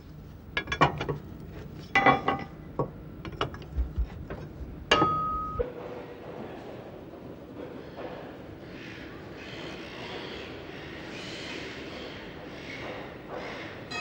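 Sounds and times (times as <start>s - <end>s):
ringing metallic strike: 4.9s - 5.7s.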